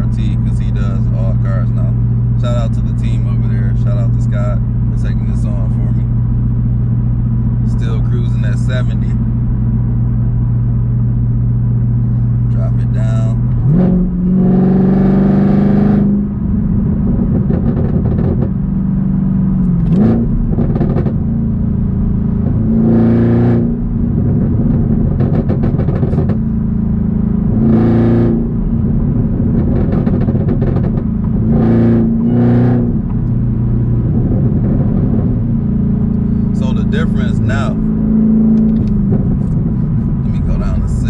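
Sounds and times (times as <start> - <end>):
car engine and exhaust: 0.0 - 41.0
exhaust swells: 19.0 - 41.0.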